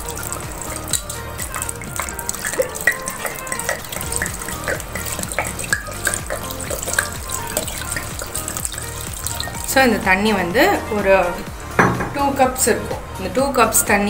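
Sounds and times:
water pouring into a pot: 0.0s - 10.7s.

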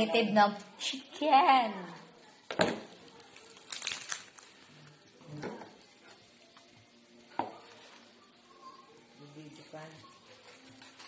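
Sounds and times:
plastic bag crinkling: 3.1s - 4.8s.

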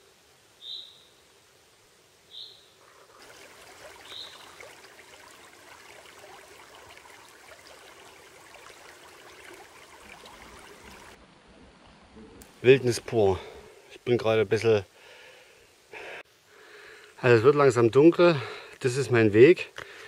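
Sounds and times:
high bird chirps: 2.3s - 2.8s, 4.0s - 4.6s
creek trickling and gurgling: 2.8s - 11.2s.

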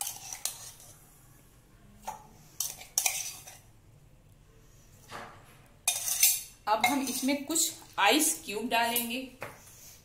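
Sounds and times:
metal spoon clinking on tumblers: 2.6s - 3.6s, 5.9s - 7.5s.

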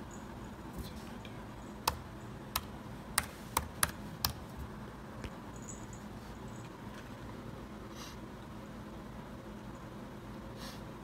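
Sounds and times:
laptop keyboard keystrokes clicking: 1.8s - 4.4s.

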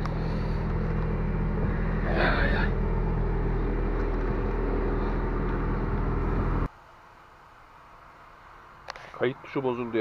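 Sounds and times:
truck diesel engine droning: 0.0s - 6.7s.

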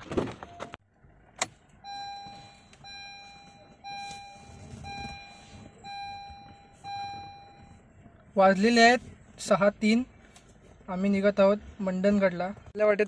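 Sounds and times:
dashboard warning chime: 1.8s - 7.9s.

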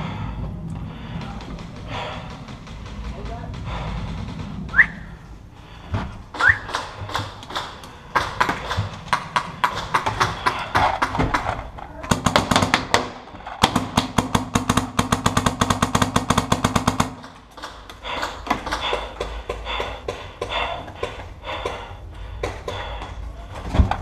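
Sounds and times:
paintball marker firing: 12.1s - 17.3s.

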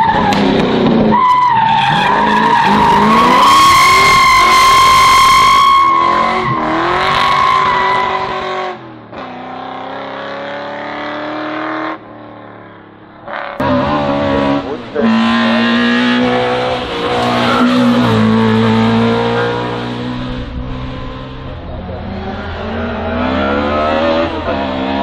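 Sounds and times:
race car engine revving: 13.3s - 25.0s.

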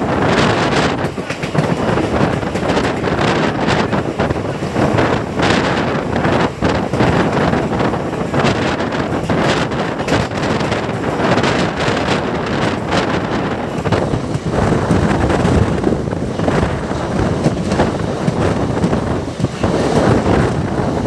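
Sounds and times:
train running noise: 0.0s - 21.0s
wind buffeting microphone: 0.0s - 21.0s.

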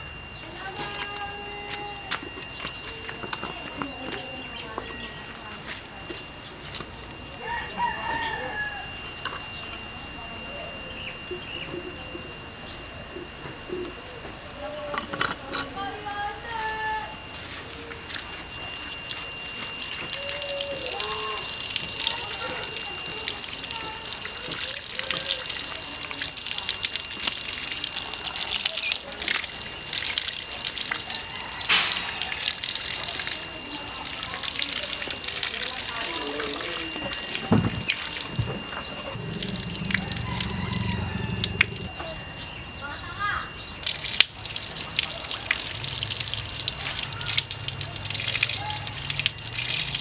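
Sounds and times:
water splashing through basket: 19.0s - 41.9s, 43.8s - 50.0s.

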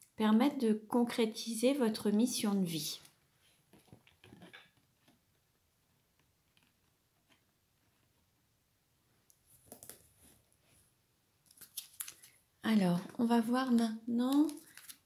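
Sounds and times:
cards tapping and rustling: 9.6s - 10.1s, 13.0s - 15.0s.

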